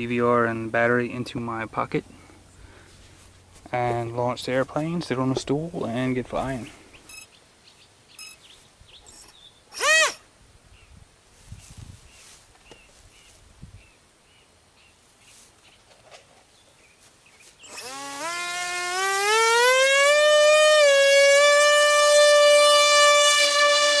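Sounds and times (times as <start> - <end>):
faint chirping: 6.7 - 9.8
electric motor whine: 17.6 - 24.0.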